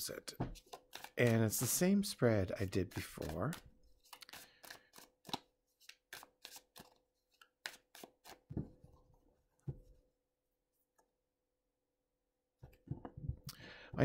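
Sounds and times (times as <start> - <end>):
cards snapping while shuffled: 0.6 - 1.4, 3.0 - 8.5.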